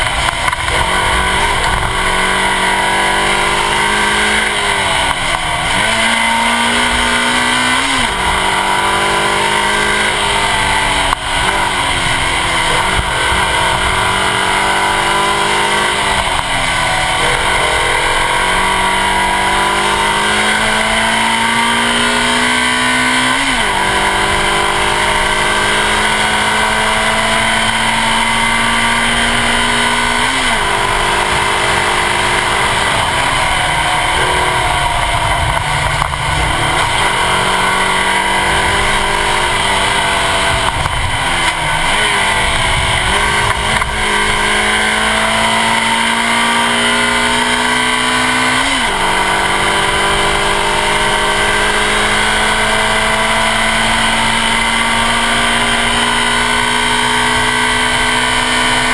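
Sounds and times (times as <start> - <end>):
car engine accelerating hard: 0.0 - 58.9
wind noise: 29.2 - 45.9.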